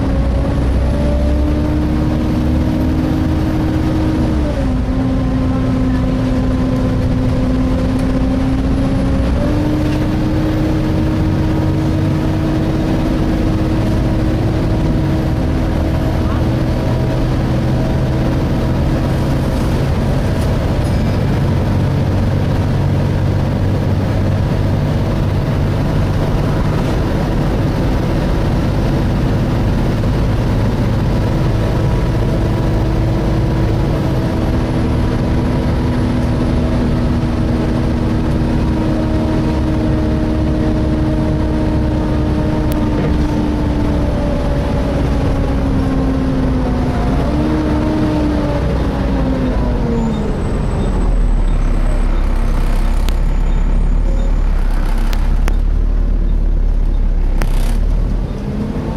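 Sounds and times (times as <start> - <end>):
bus engine: 0.0 - 58.9
road noise: 0.0 - 58.9.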